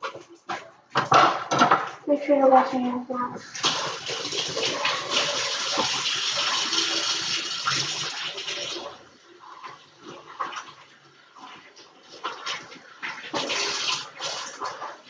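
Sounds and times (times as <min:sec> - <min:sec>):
kitchen tap running: 0:03.4 - 0:15.0.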